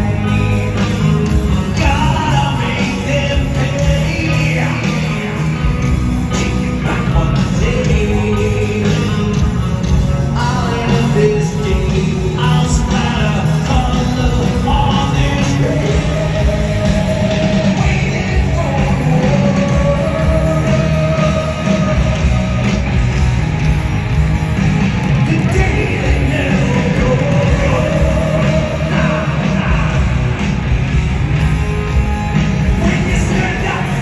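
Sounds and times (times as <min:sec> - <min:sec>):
bass guitar: 0:00.0 - 0:34.0
distorted electric guitars: 0:00.0 - 0:34.0
drums: 0:00.0 - 0:34.0.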